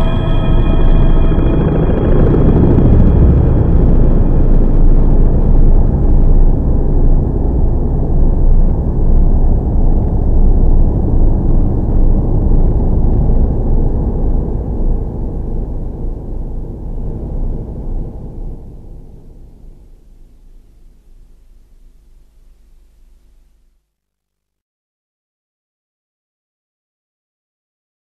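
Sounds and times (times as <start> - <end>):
held synth tones: 0.0 - 5.1
rumbling electronic noise: 0.0 - 23.7.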